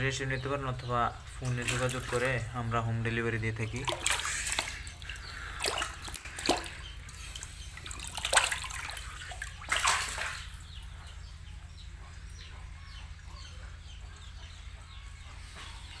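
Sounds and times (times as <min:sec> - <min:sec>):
steady low hum: 0:00.0 - 0:16.0
water splashing and sloshing: 0:01.1 - 0:11.2.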